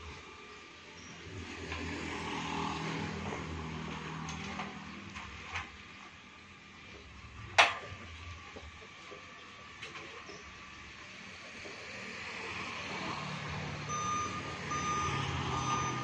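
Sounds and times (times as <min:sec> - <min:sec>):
vehicle passing: 0:01.2 - 0:05.0, 0:11.9 - 0:16.0.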